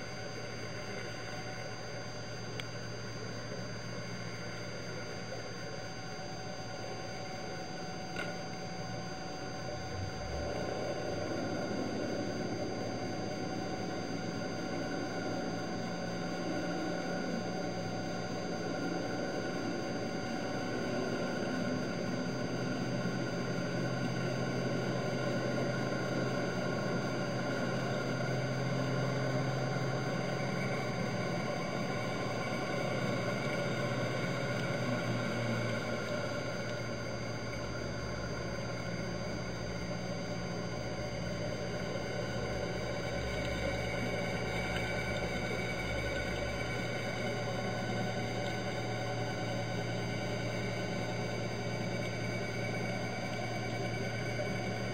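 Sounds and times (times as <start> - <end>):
boat engine drone underwater: 0.0 - 54.9
faint high-pitched whine: 0.0 - 54.9.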